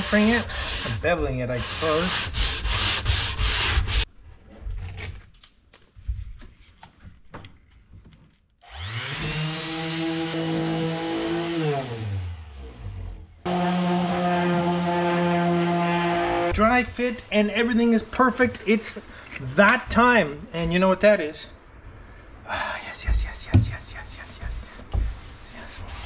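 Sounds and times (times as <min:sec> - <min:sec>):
hand sanding wood: 0:00.0 - 0:04.1, 0:13.5 - 0:16.5, 0:23.1 - 0:26.0
power tool hum: 0:08.7 - 0:16.5
orbital sander running: 0:13.5 - 0:16.5.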